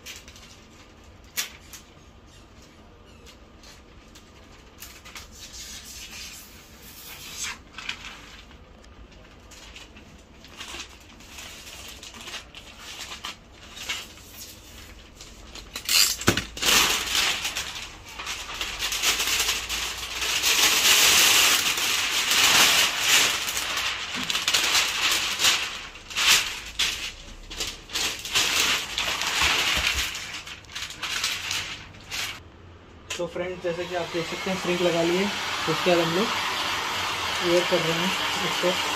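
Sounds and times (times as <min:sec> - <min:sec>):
plastic film rustling and crackling: 0:00.0 - 0:32.4.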